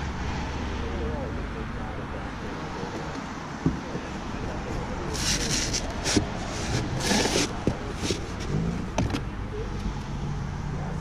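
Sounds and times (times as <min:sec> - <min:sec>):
low road traffic rumble: 0:00.0 - 0:11.0
glass bottles scraping on cardboard: 0:05.1 - 0:08.6.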